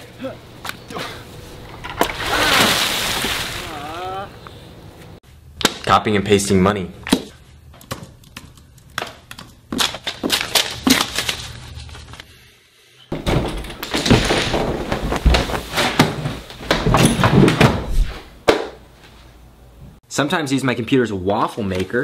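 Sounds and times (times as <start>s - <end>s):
thumps and bangs: 13.1s - 18.8s.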